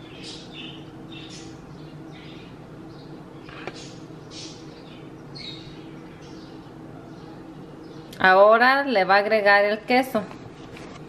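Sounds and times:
small bird chirping: 0.0 - 8.2
faint steady hum: 0.0 - 11.0.

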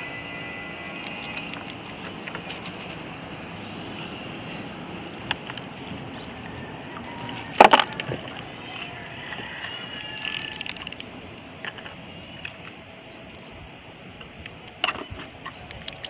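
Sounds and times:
outdoor background noise: 0.0 - 16.0
faint clicks: 7.2 - 12.8.

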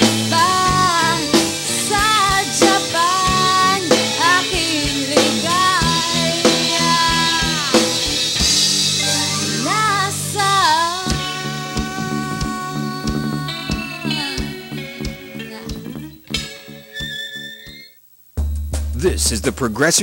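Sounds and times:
person singing: 0.0 - 8.4, 9.0 - 16.0
drum beat: 0.0 - 9.8, 11.1 - 16.5, 18.3 - 20.0
electric guitar: 0.0 - 17.1
bass: 0.0 - 20.0.

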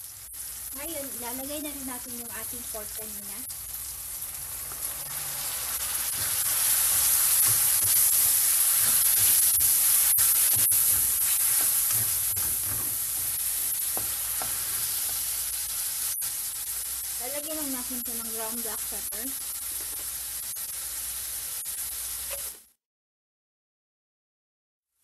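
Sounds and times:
meat sizzling in hot oil: 0.0 - 22.6
spatula scraping a wok: 4.7 - 16.8.

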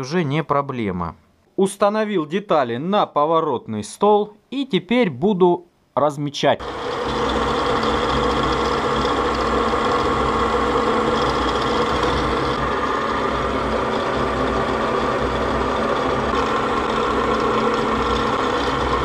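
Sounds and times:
drill press motor humming: 6.6 - 19.0.

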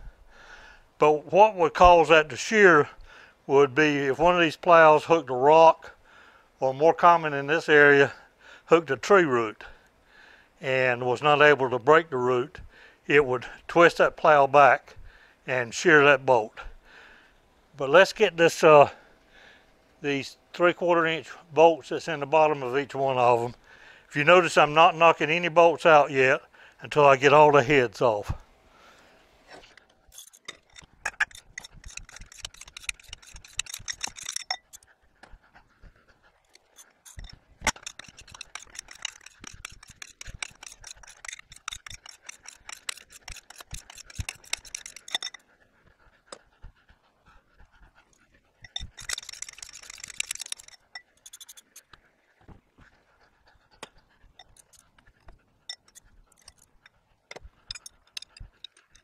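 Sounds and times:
metal clicks: 30.1 - 34.8, 36.5 - 45.4, 48.6 - 51.9, 55.7 - 59.0
socket wrench ratchet clicking: 30.2 - 34.8, 36.6 - 45.4, 48.6 - 51.8, 57.7 - 59.0.

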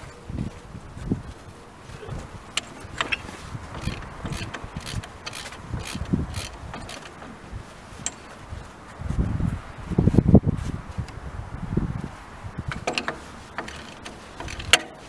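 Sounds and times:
ratchet wrench clicking: 2.6 - 7.3, 12.7 - 15.0.

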